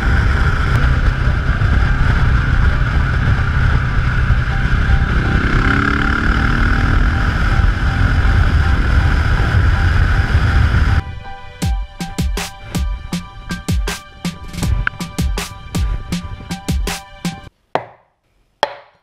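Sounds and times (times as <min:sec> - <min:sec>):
motorcycle engine: 0:00.0 - 0:11.0
road noise: 0:00.0 - 0:17.5
wind rumble: 0:00.0 - 0:17.5.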